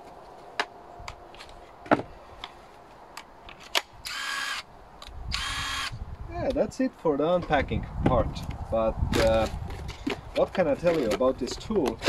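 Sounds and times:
impact wrench motor whine: 4.0s - 4.6s, 5.3s - 5.9s.

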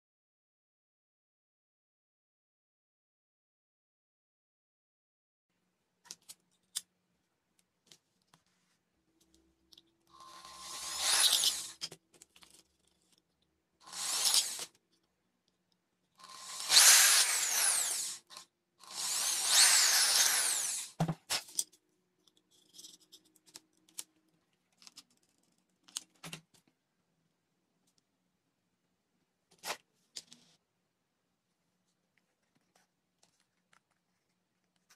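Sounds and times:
electric drill boring: 10.1s - 11.8s, 13.8s - 14.7s, 16.2s - 21.0s.

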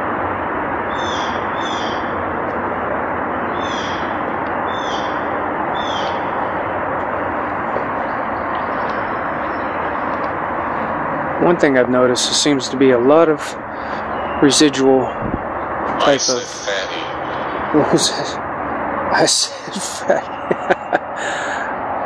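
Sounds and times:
steady rushing noise: 0.0s - 22.0s
short high falling call: 15.9s - 18.4s.

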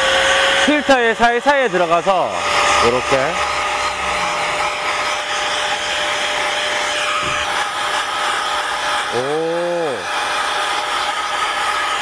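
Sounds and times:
faint motor whine: 0.0s - 12.0s
rush of air from air gun: 2.8s - 12.0s.

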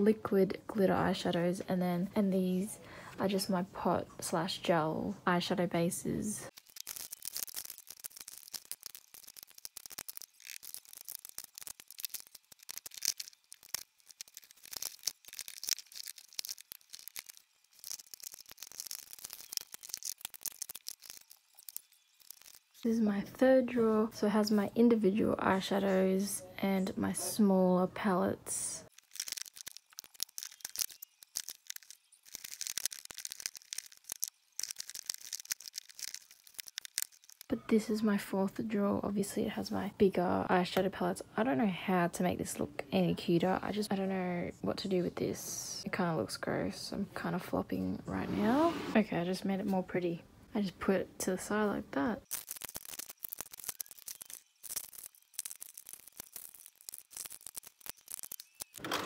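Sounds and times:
cases scraping: 48.2s - 49.0s, 58.8s - 59.0s
plastic cases clicking and scraping: 57.1s - 59.0s.

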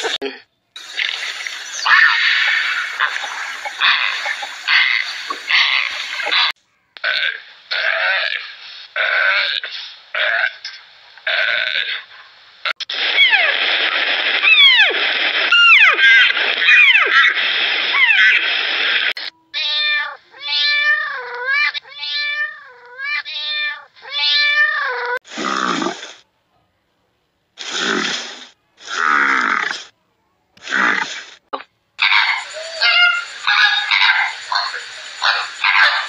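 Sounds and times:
hiss with falling whistles: 0.8s - 6.5s, 32.0s - 36.0s
harsh animal calls: 0.8s - 12.3s, 32.0s - 36.0s
kittens meowing: 32.0s - 36.0s.

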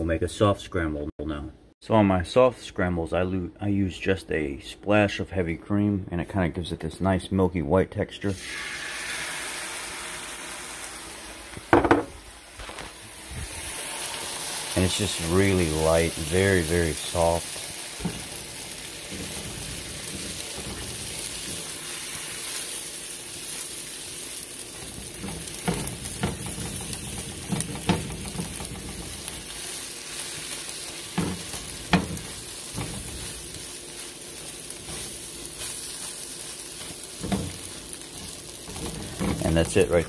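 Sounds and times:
eggs sizzling in skillet: 8.4s - 40.0s
spatula scraping and tapping pan: 25.0s - 29.6s, 31.1s - 33.7s, 36.8s - 39.8s.

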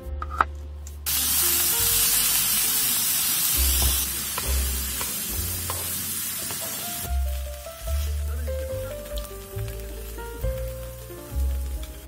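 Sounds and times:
meat sizzling on a griddle: 1.1s - 12.0s
utensil clicking on pan: 3.8s - 6.7s.

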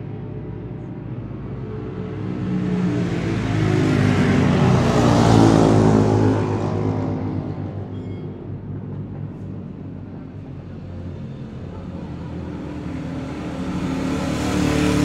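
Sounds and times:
racing motorcycle engine: 11.8s - 15.0s.

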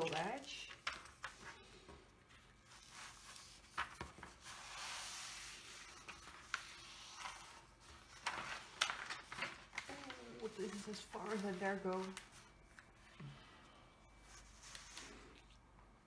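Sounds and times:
paper sheet crackles: 0.0s - 1.6s, 2.4s - 13.0s, 14.2s - 15.6s
paper sheet sliding rustle: 2.7s - 12.5s, 14.2s - 15.6s.

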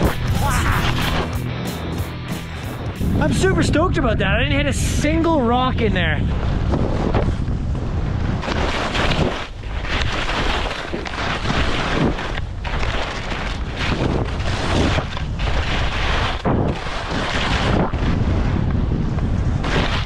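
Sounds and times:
skis scraping icy snow: 0.0s - 1.4s, 6.4s - 18.6s, 19.6s - 20.0s
wind buffeting microphone: 0.0s - 20.0s.

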